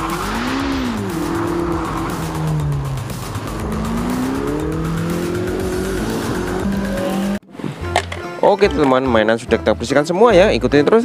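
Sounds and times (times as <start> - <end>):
sports car engine at speed: 0.0 - 7.4
tyre and road noise: 0.0 - 8.3.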